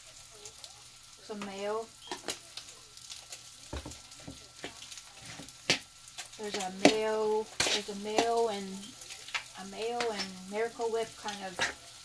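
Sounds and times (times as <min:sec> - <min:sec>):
food frying in a pan: 0:00.0 - 0:12.0.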